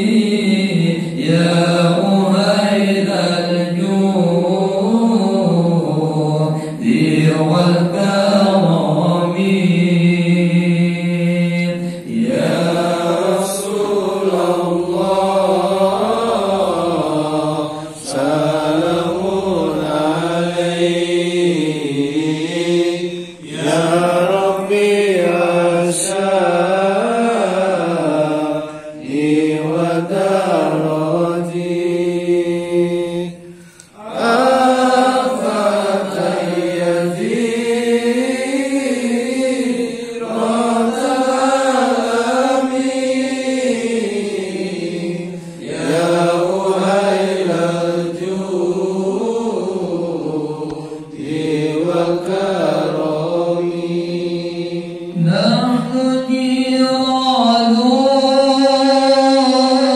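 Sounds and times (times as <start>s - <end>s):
man chanting: 0.0s - 33.4s, 51.2s - 59.9s.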